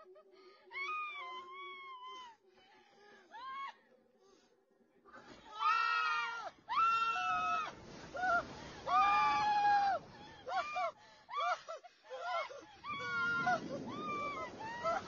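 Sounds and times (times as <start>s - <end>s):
people screaming: 5.4s - 15.0s.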